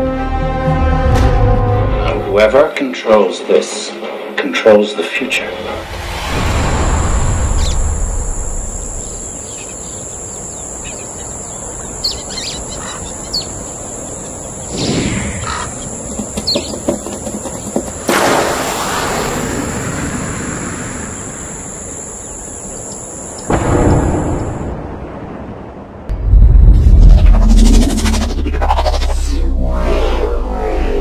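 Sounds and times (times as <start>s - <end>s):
brief whoosh: 5.7s - 9.0s
birds chirping: 7.3s - 18.1s, 20.4s - 24.7s
steady high-pitched tone: 26.1s - 31.0s.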